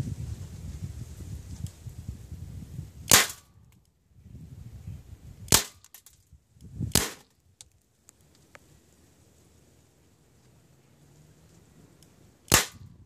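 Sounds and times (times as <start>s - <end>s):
pellet rifle shots: 3.1s - 3.5s, 5.5s - 6.1s, 6.9s - 7.3s, 12.5s - 12.9s.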